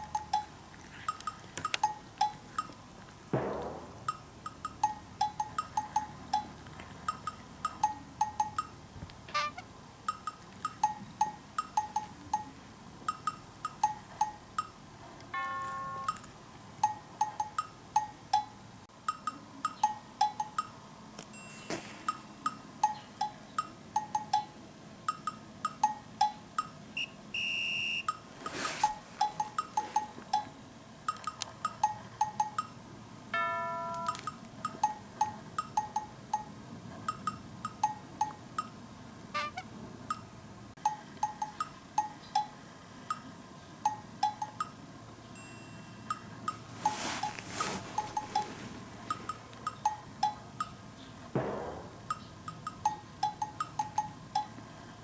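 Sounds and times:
chiming notes: 0:15.4 - 0:18.5, 0:21.3 - 0:23.1, 0:33.4 - 0:36.5, 0:45.4 - 0:47.2.

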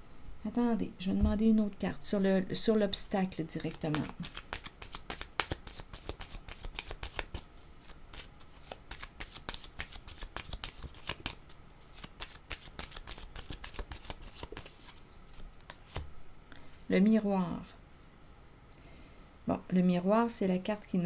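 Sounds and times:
cards being shuffled: 0:03.6 - 0:16.1.

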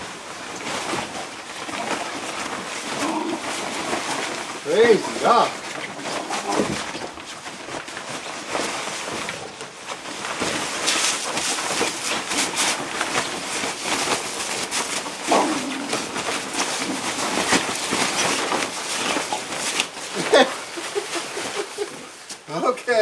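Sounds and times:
dogs scuffling in blanket: 0:00.0 - 0:23.0
fabric rustling: 0:00.0 - 0:23.0.

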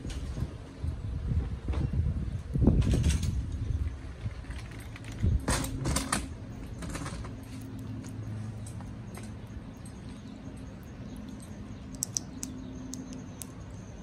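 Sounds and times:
parrots crunching food: 0:06.8 - 0:13.6
sharp beak clicks: 0:11.1 - 0:13.7.

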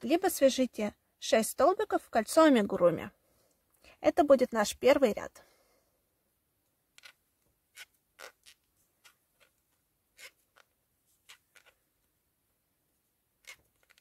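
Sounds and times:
crochet hook clicks and scratches: 0:06.9 - 0:09.6, 0:10.2 - 0:11.8, 0:13.4 - 0:14.0.

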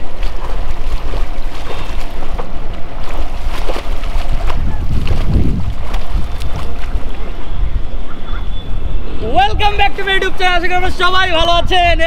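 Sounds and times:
water splashing: 0:00.0 - 0:11.5
wind rumble on microphone: 0:00.0 - 0:12.0.

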